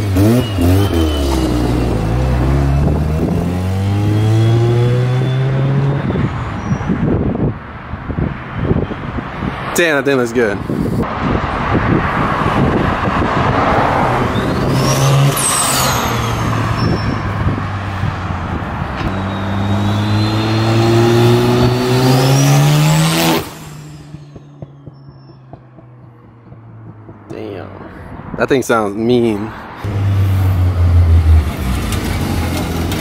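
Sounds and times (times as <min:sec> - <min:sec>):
car engine revving past: 0:19.0 - 0:24.4.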